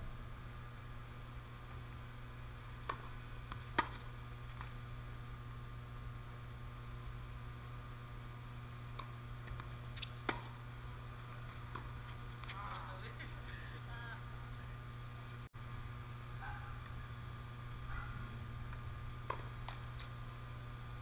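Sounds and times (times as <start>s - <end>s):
low electrical hum: 0.0s - 21.0s
racket striking tennis ball: 2.8s - 4.7s, 8.9s - 10.6s, 19.2s - 20.1s
tennis ball bouncing: 2.8s - 4.8s, 8.9s - 10.6s, 11.4s - 12.9s, 19.2s - 20.1s.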